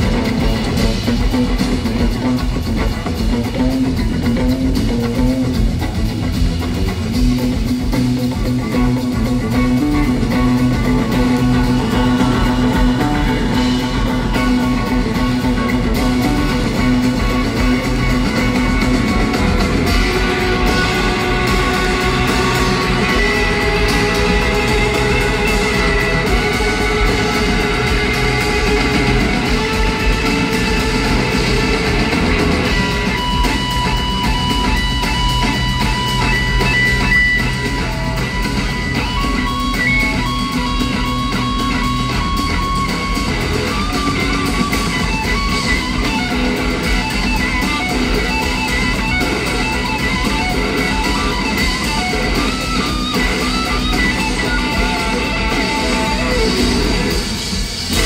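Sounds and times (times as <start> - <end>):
drums: 0.0 - 58.0
electric bass guitar solo: 0.0 - 58.0.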